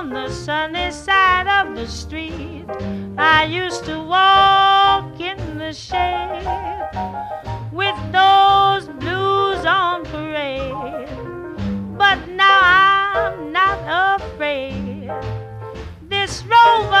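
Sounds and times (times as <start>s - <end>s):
swing jazz music: 0.0s - 17.0s.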